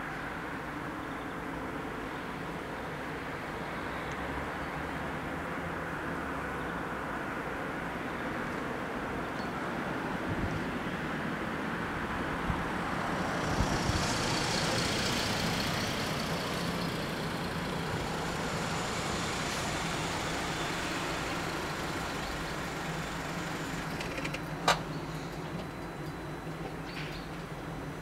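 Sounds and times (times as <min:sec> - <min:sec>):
engines idling: 0:11.9 - 0:28.0
car driving up and stopping: 0:12.7 - 0:28.0.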